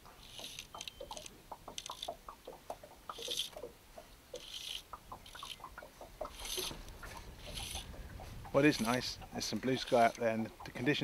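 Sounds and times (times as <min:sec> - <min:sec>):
fly line hissing: 0:04.4 - 0:05.7, 0:06.3 - 0:07.9
water slaps: 0:04.4 - 0:11.0.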